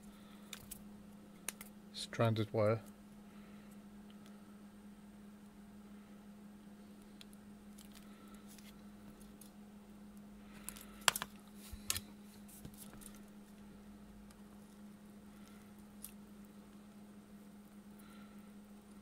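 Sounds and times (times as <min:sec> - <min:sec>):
faint low hum: 0:00.0 - 0:19.0
small clicks and taps of tools: 0:10.6 - 0:12.0.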